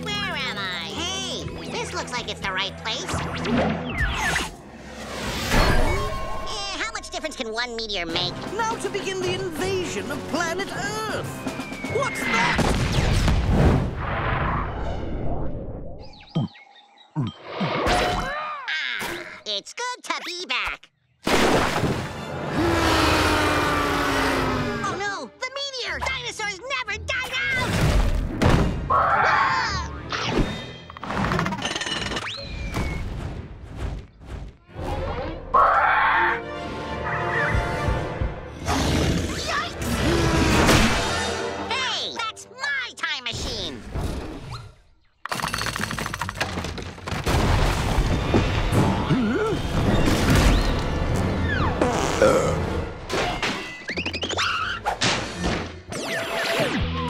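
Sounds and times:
orchestral cartoon music: 5.5 - 12.6, 34.6 - 43.1.

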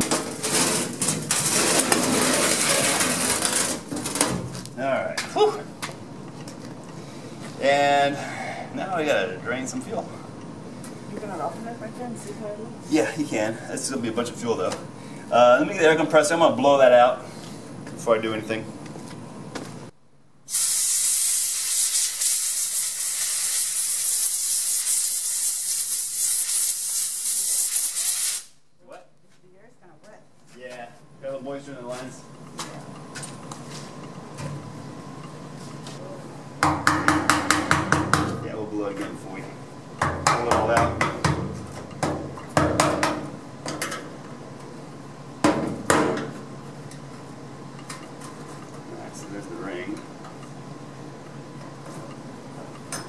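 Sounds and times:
compressed air blow gun hissing: 20.5 - 28.6
hammer striking metal tank: 36.6 - 38.4.

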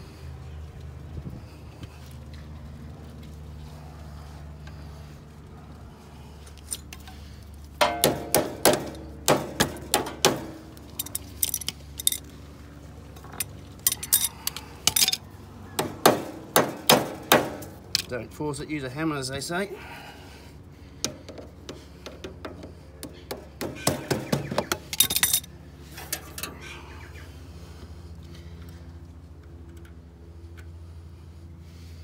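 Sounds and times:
low steady hum: 0.0 - 32.0
hammer striking metal: 7.8 - 10.6.

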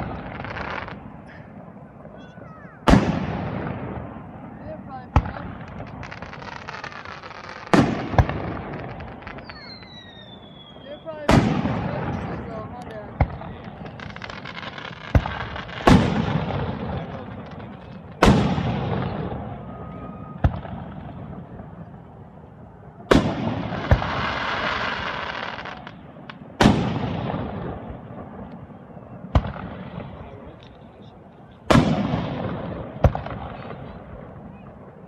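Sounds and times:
fireworks booming: 0.0 - 35.0
sharp firework pops: 2.1 - 4.0, 5.1 - 19.3, 23.1 - 28.7, 29.3 - 30.8, 31.7 - 34.6.

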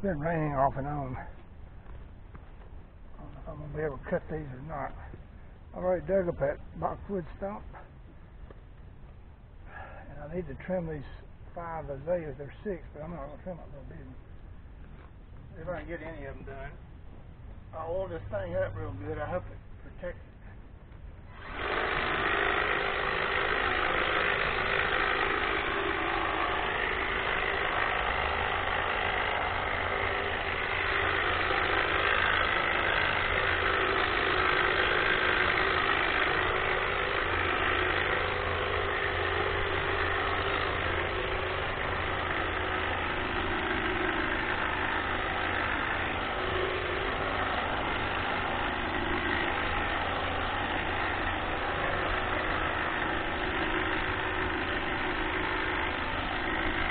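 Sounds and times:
low hum: 0.0 - 56.9
hedge trimmer running: 21.2 - 56.9.

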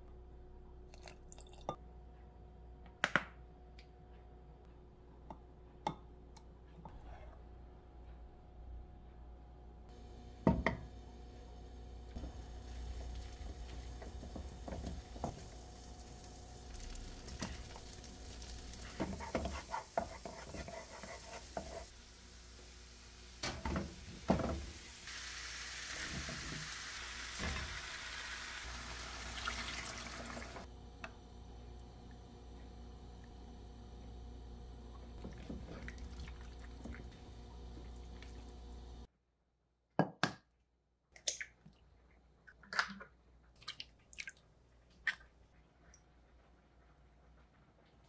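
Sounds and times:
garlic sizzling in oil: 12.2 - 30.7
spatula scraping cookware: 19.0 - 21.9.

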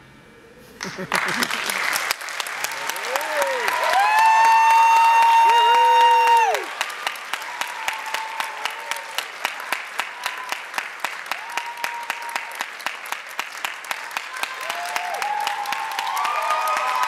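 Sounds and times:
audience applauding: 0.8 - 17.0
close person clapping: 0.8 - 17.0
voices cheering: 2.6 - 12.7, 13.9 - 17.0.

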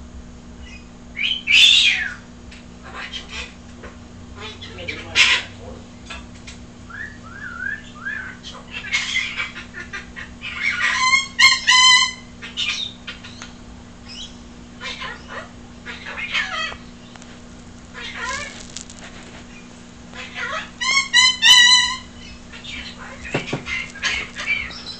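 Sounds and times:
kookaburra calling: 8.1 - 24.9.

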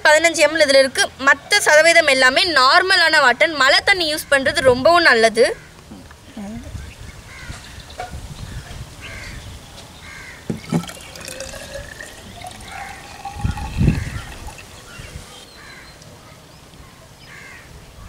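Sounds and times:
birds calling: 5.5 - 17.7
dull thump: 10.5 - 11.0
liquid trickling into a cylinder: 10.5 - 15.4.

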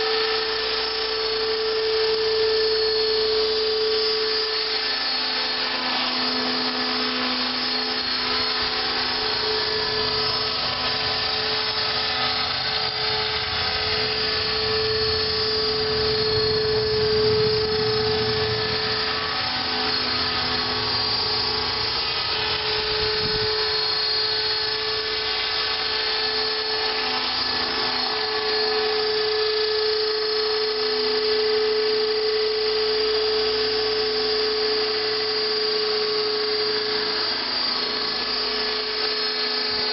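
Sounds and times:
electric motor high whine: 0.0 - 39.9
rotor blades hissing: 2.1 - 30.1.

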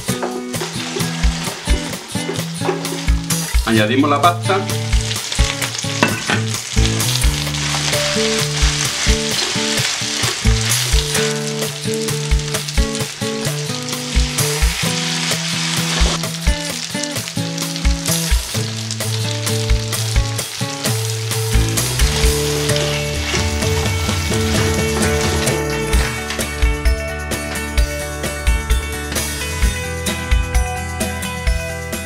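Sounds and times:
background music with steady beat: 0.0 - 7.5
food sizzling in a frying pan: 0.0 - 30.0.

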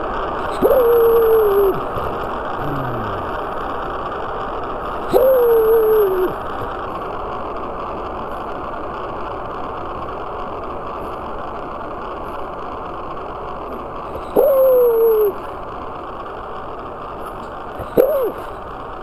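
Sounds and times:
steady rushing noise: 0.0 - 19.0
dog baying: 0.4 - 3.3, 17.8 - 18.5.

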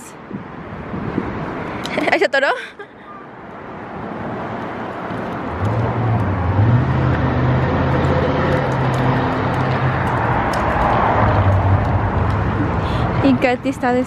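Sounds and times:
bicycle rolling over asphalt: 4.4 - 12.6.

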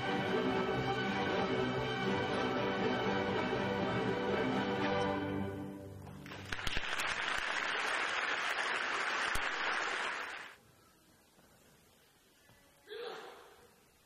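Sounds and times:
audience applause: 6.1 - 10.6.

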